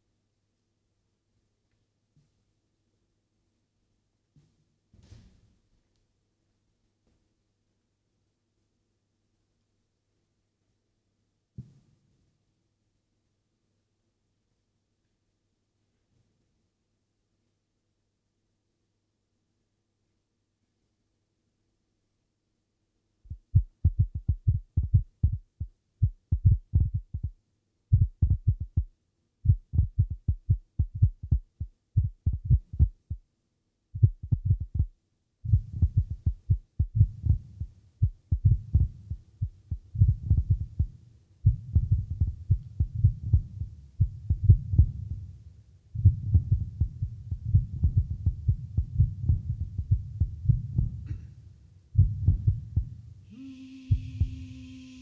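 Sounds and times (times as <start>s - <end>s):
low throbbing pulses: 35.5s - 45.2s, 46.0s - 51.0s, 52.0s - 52.9s, 53.9s - 54.8s
low hum: 35.5s - 45.4s, 46.0s - 51.3s, 52.0s - 55.0s.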